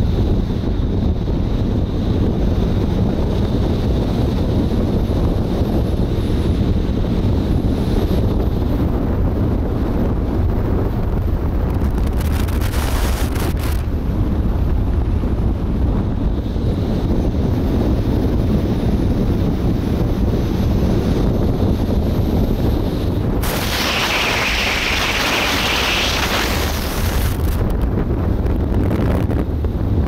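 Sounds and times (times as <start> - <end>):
wind buffeting microphone: 0.0 - 30.0
brief crackling hiss: 23.4 - 27.6.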